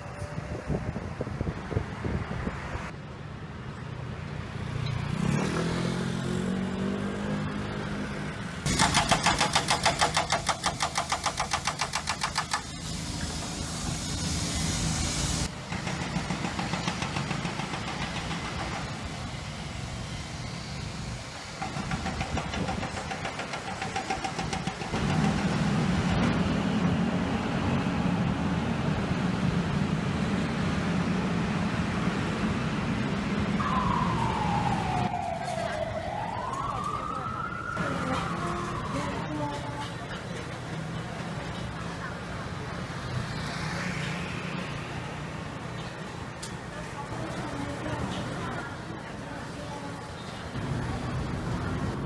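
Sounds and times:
vehicles passing: 0.0 - 52.0
engine noise: 4.6 - 52.0
hydraulic breaker hammering asphalt: 8.7 - 12.8, 21.6 - 25.6.

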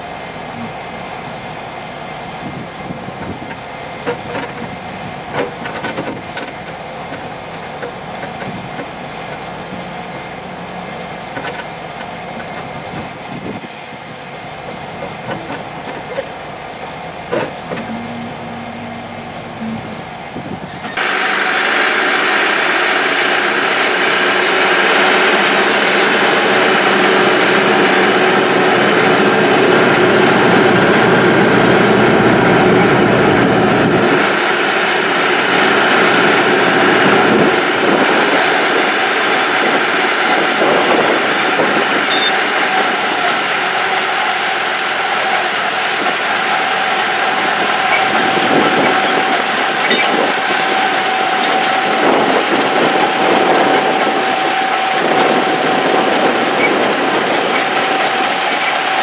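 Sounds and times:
bulldozer diesel engine under load: 0.0 - 59.0
crawler tracks clanking: 14.6 - 21.1, 25.0 - 59.0.

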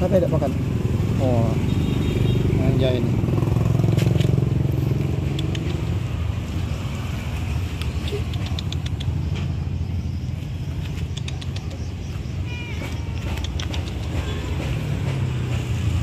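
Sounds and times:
vehicle engine rumble: 0.0 - 16.0.

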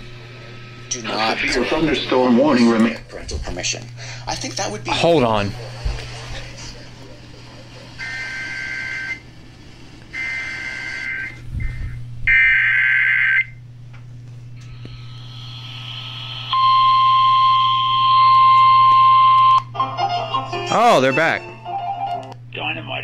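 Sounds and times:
emergency attention tone: 8.0 - 9.3, 10.1 - 13.6, 16.5 - 19.6.

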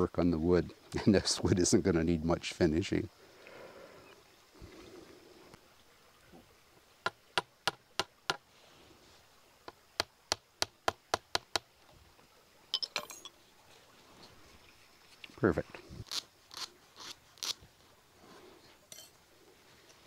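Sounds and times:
rattle of clinks: 12.7 - 13.4.

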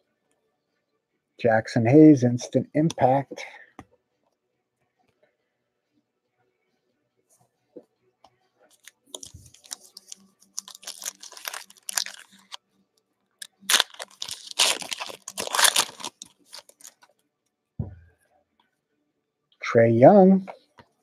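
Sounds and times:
plastic wrapper crinkling and tearing: 8.7 - 12.6, 13.4 - 17.1.

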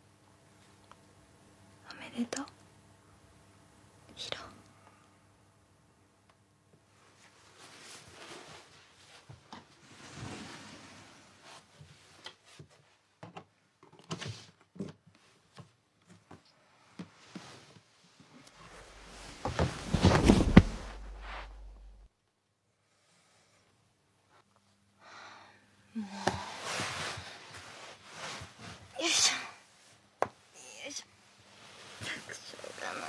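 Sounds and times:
soft rustling: 6.9 - 13.0, 15.2 - 22.1, 26.4 - 29.1, 31.2 - 33.0
low rumble: 18.7 - 22.1.

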